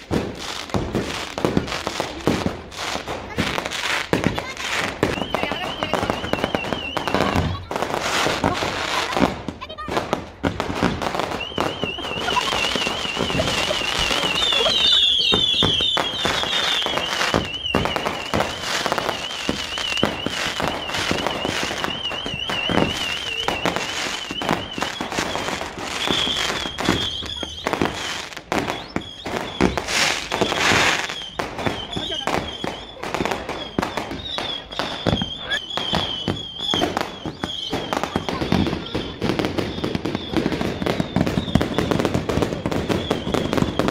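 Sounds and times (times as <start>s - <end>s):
fireworks bangs and crackles: 0.0s - 43.9s
high warbling whistle: 11.2s - 43.9s.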